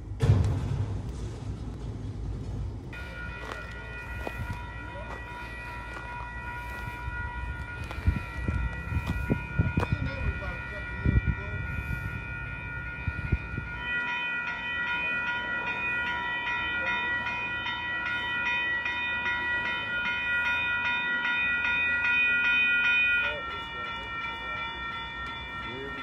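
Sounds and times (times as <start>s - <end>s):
low rumble with knocks: 0.0s - 3.0s
railroad crossing bell ringing: 2.9s - 26.0s.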